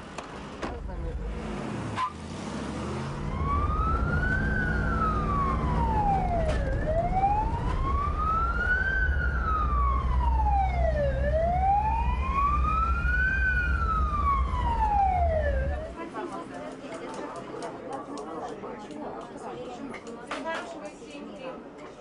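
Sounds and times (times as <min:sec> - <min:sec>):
vehicle engine rumble: 0:00.0 - 0:16.1
siren wailing: 0:03.1 - 0:16.0.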